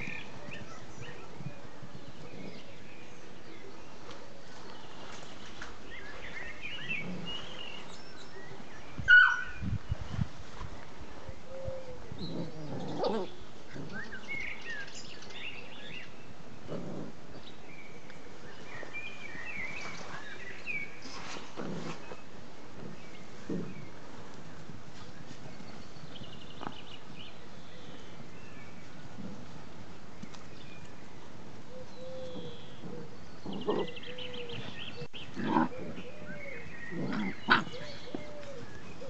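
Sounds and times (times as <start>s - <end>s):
puppy yelping: 9.1s - 9.5s.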